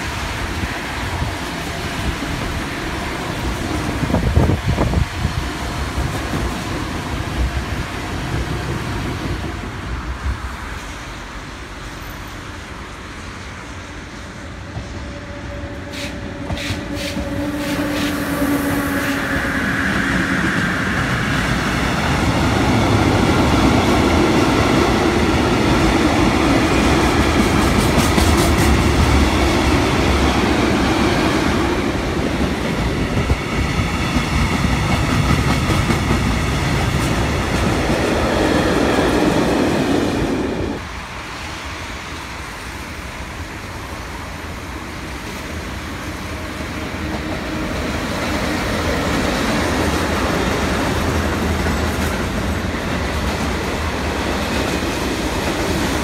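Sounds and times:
locomotive tone and whine: 0:10.8 - 0:24.1
train wheels clacking over rail joints: 0:25.3 - 0:29.4.

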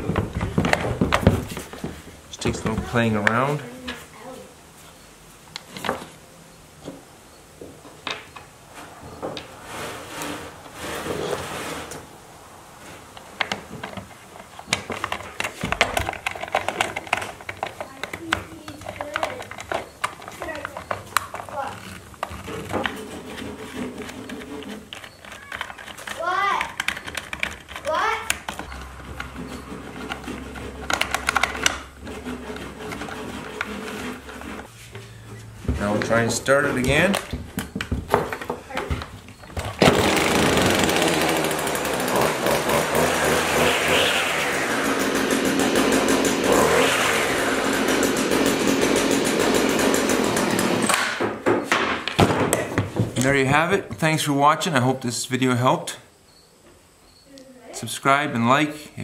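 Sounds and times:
handling knocks and rustling: 0:00.0 - 0:04.2, 0:12.8 - 0:40.0, 0:50.9 - 0:53.4.

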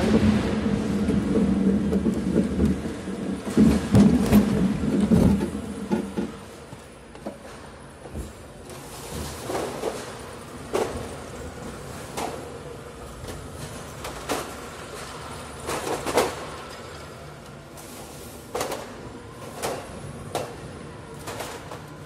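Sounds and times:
bottle crates knocking and clattering: 0:00.0 - 0:11.4, 0:13.3 - 0:16.9.

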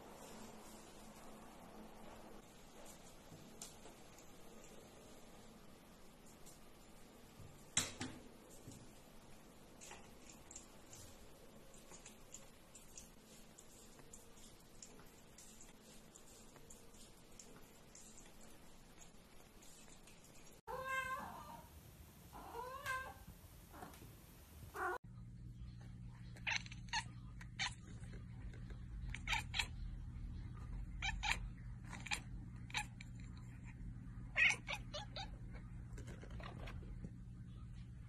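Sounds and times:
cat meowing: 0:20.7 - 0:21.7, 0:22.4 - 0:23.3, 0:29.1 - 0:29.7, 0:31.0 - 0:32.9, 0:34.4 - 0:35.3
steady low hum: 0:23.4 - 0:38.0
cat chirping: 0:26.4 - 0:27.9, 0:29.1 - 0:29.8, 0:31.0 - 0:33.1, 0:34.4 - 0:35.4.

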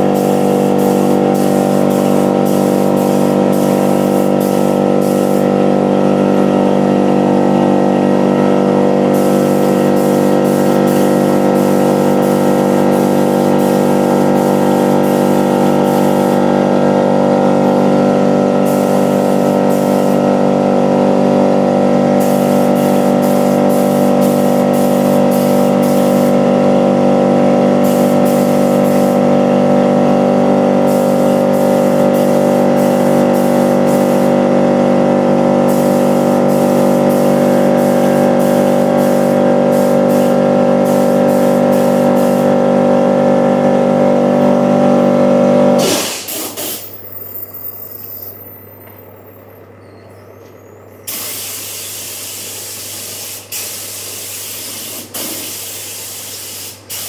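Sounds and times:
spray gun hissing: 0:00.0 - 0:05.6, 0:09.1 - 0:16.6, 0:18.6 - 0:20.3, 0:22.2 - 0:26.5, 0:27.8 - 0:29.4, 0:30.7 - 0:34.4, 0:35.6 - 0:42.7, 0:45.8 - 0:46.8, 0:51.1 - 0:57.0
air compressor motor humming: 0:00.0 - 0:47.0, 0:51.0 - 0:57.0.

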